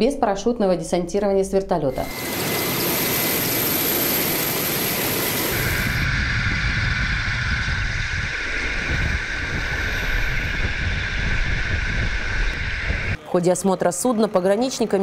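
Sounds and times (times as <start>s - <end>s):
helicopter rotor and engine: 1.9s - 13.2s
wind: 1.9s - 15.0s.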